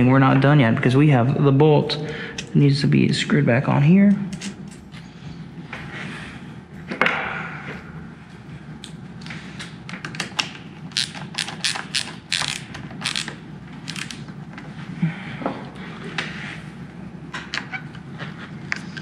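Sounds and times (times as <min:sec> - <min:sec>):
hand ratchet clicking: 0:10.9 - 0:14.2.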